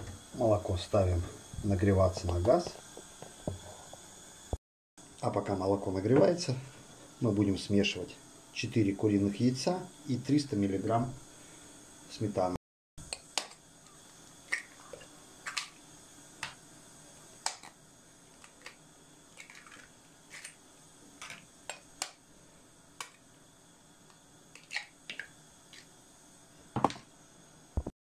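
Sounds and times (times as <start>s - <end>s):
knock on plastic jug: 26.8s - 27.0s.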